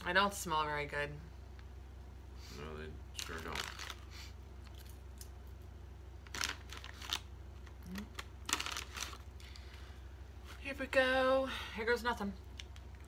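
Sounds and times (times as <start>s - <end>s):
chip bag crinkling: 3.2s - 5.3s, 6.2s - 9.8s.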